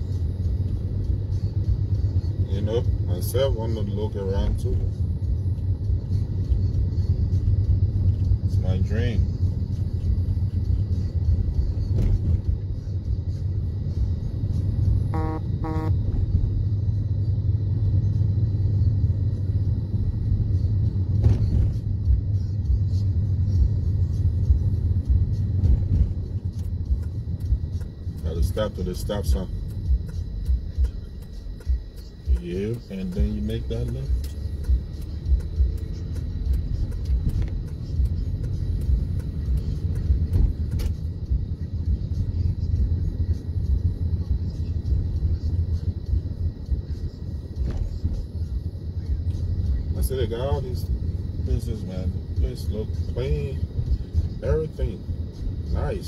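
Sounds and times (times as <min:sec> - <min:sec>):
car cabin engine and road rumble: 0:00.0 - 0:56.0.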